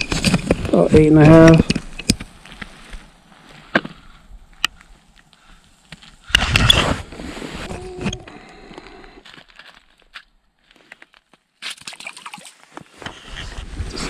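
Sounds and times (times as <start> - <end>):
handling clicks and knocks: 0.0 - 2.4.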